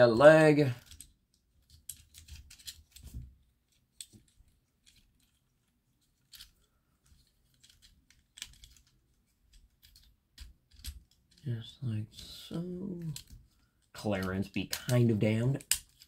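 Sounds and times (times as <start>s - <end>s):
plastic toy clicks and rattles: 0.8s - 3.0s, 6.2s - 11.5s, 13.0s - 16.0s.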